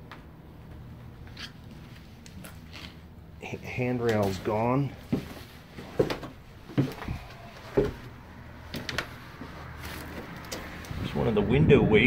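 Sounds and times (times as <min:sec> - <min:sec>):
footsteps on wooden floorboards: 0:04.0 - 0:11.0.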